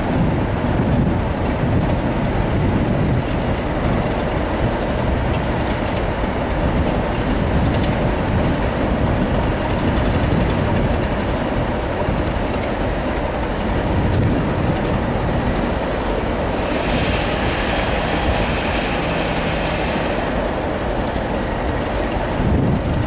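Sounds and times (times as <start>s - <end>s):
diesel locomotive engine running: 0.0s - 23.0s
wheels clicking over rail joints: 0.1s - 23.0s
wheels squealing: 16.5s - 21.9s.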